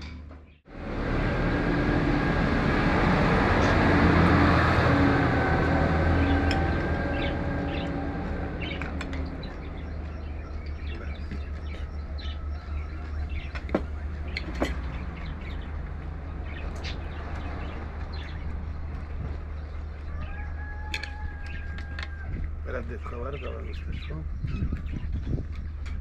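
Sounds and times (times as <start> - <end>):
vehicle passing: 0.7 - 23.8
small birds chirping: 6.2 - 26.0.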